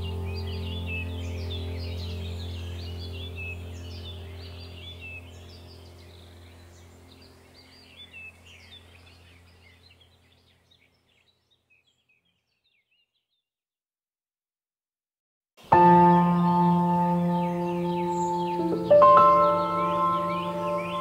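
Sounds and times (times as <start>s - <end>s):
steady low hum: 0.0s - 10.3s
birds chirping and twittering: 0.0s - 13.5s, 15.6s - 21.0s.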